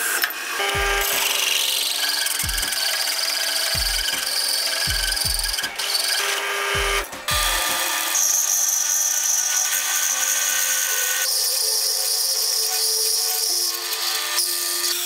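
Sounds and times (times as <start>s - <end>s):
drill press cutting metal: 0.0s - 15.0s
bass drum beats of music: 0.8s - 1.3s, 2.4s - 2.8s, 3.8s - 4.2s, 4.9s - 5.8s, 6.7s - 7.8s.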